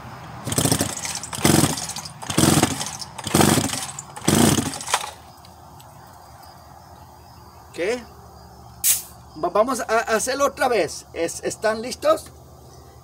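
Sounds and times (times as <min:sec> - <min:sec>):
chainsaw recoil starter pulls: 0:00.4 - 0:05.3.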